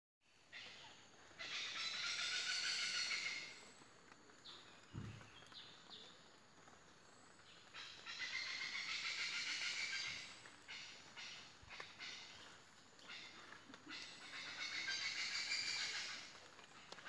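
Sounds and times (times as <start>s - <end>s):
hornbills harsh calls: 1.4s - 3.6s, 7.8s - 16.4s.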